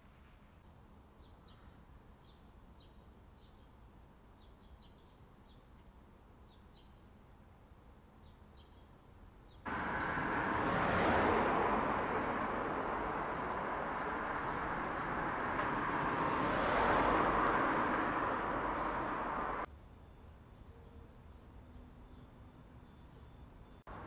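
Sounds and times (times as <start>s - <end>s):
small birds chirping: 9.5s - 24.0s
car passing close by: 9.7s - 19.7s
street traffic: 9.7s - 19.7s, 20.6s - 24.0s.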